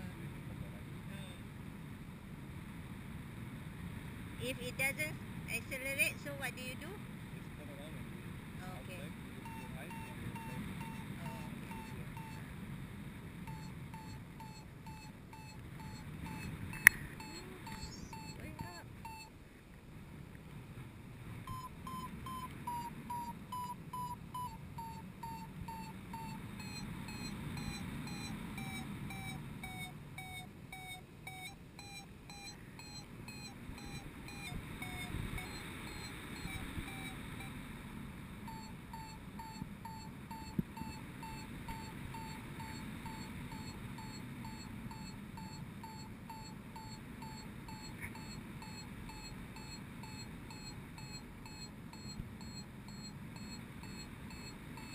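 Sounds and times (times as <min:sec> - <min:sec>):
variometer beeping: 0:09.4 - 0:12.5, 0:13.4 - 0:19.4, 0:21.4 - 0:54.9
wind on microphone: 0:32.3 - 0:45.2.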